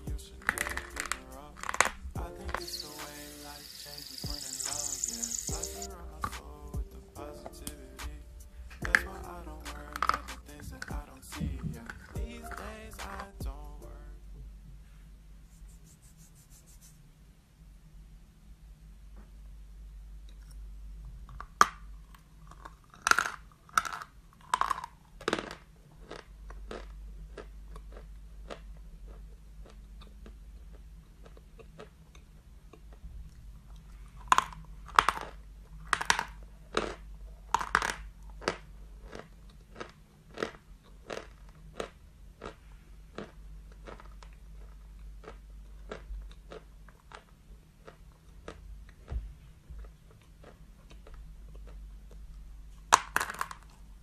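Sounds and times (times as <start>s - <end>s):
chalk crunching while chewed: 0.3s - 6.6s, 8.8s - 13.1s, 21.3s - 49.2s, 49.8s - 53.9s.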